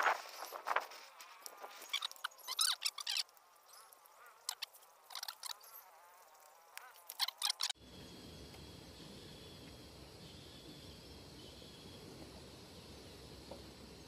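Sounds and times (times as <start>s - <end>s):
faint steady hiss: 5.8s - 14.0s.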